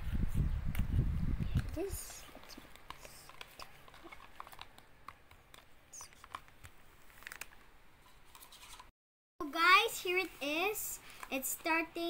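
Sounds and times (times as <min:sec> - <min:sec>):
sticky clicks of slime mixing: 0:01.6 - 0:07.5.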